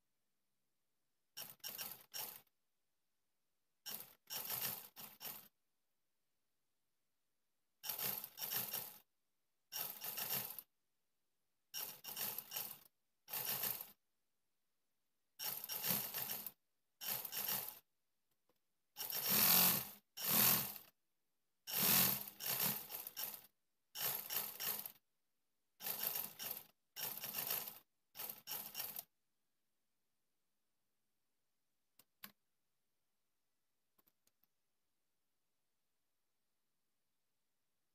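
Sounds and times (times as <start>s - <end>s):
sewing machine stitching: 1.4s - 2.5s, 3.8s - 5.6s, 7.8s - 9.1s, 9.7s - 10.7s, 11.7s - 14.0s, 15.4s - 17.9s, 19.0s - 21.0s, 21.7s - 25.0s, 25.8s - 29.1s.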